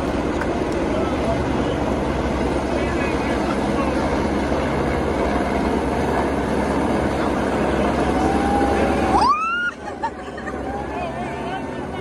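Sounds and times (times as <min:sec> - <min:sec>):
helicopter rotor drone: 0:00.0 - 0:12.0
crowd chatter: 0:00.6 - 0:12.0
long rising whistle: 0:08.1 - 0:09.8.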